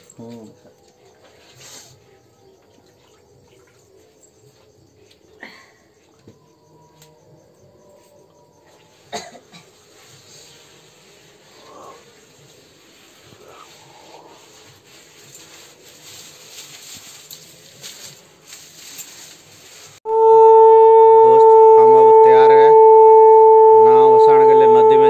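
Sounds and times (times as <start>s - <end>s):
conch shell blown: 20.0s - 25.0s.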